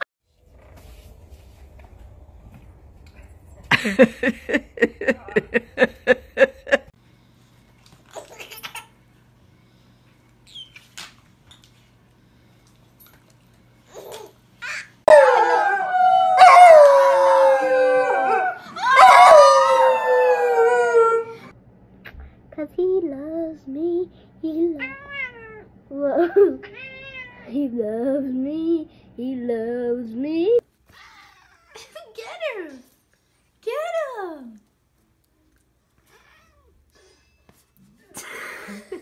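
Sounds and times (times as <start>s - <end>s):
children howling: 15.1s - 21.5s
dog howling: 15.1s - 21.5s.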